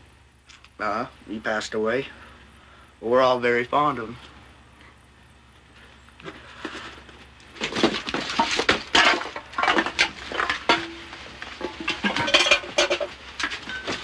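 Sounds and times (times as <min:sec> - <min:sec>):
hard objects clattering and clinking: 0:07.6 - 0:14.0.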